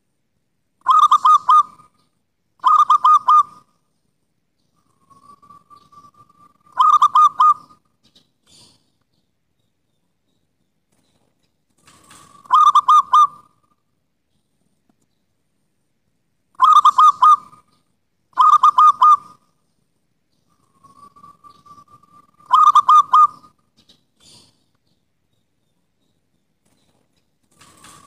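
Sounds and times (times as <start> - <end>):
dove cooing: 0.8 - 2.0, 2.6 - 3.7, 4.8 - 7.8, 11.9 - 13.6, 16.6 - 17.7, 18.4 - 19.5, 20.5 - 23.6.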